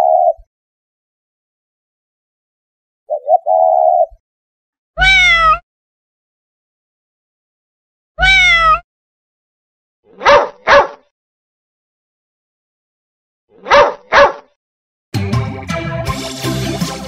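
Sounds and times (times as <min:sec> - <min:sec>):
pigeon cooing: 0:00.0 - 0:00.5, 0:03.1 - 0:04.2
cat meowing: 0:05.0 - 0:05.6, 0:08.2 - 0:08.9
dog barking: 0:10.1 - 0:11.1, 0:13.6 - 0:14.6.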